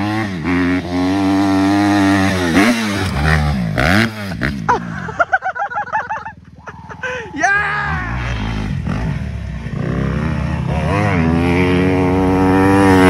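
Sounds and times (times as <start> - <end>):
dirt bike engine revving: 0.0 - 6.2, 7.4 - 13.0.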